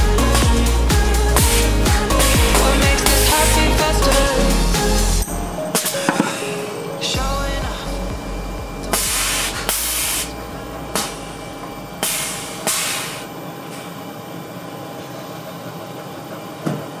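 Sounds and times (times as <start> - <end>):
low hum: 0.0 - 5.7, 7.1 - 15.4
air suspension hissing: 0.7 - 6.7, 8.9 - 13.3.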